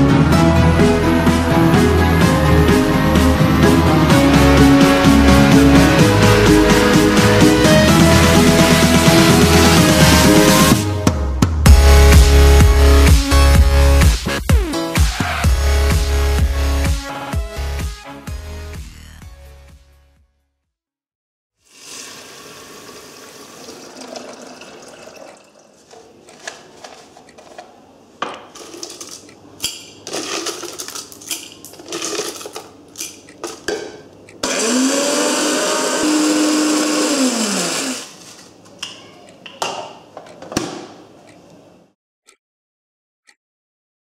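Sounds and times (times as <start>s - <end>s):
coffee grinder running: 21.7s - 24.9s, 34.4s - 38.4s.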